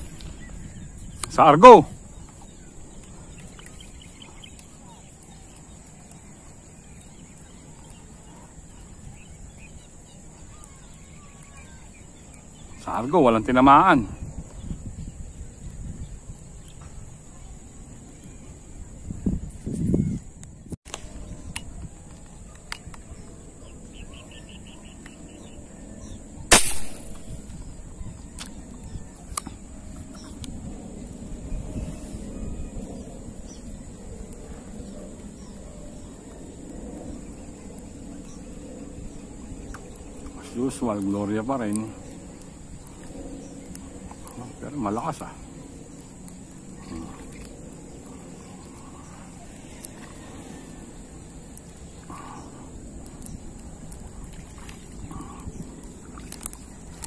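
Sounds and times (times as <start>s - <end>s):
faint bird chirps: 0.0s - 19.1s, 19.8s - 57.0s
fishing gun shot crack: 26.5s - 27.5s
faint clicks: 46.0s - 57.0s.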